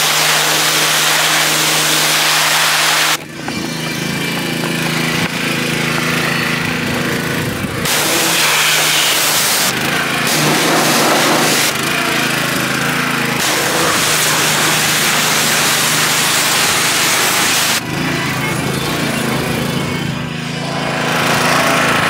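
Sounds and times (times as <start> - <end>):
pressure washer spray hissing: 0.0 - 3.2, 7.8 - 11.8, 13.4 - 17.8
pressure washer motor hum: 0.0 - 22.0.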